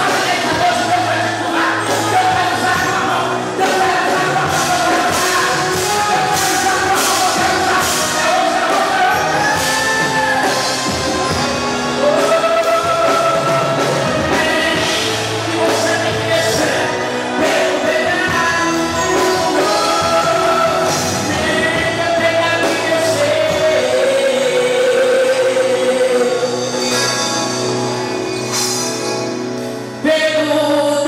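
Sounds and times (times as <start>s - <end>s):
steady drum beat: 0.0s - 24.6s
person singing lead vocal: 0.0s - 28.0s, 29.6s - 31.0s
gospel band playing: 0.0s - 31.0s.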